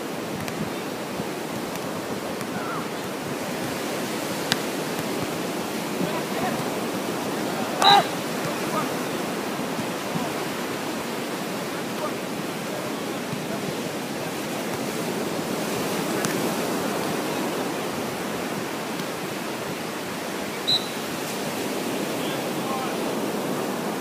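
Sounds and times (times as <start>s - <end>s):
surf: 0.0s - 24.0s
wind: 0.0s - 24.0s
faint tap: 0.4s - 0.7s, 16.2s - 16.4s
short high chirp: 20.6s - 21.0s.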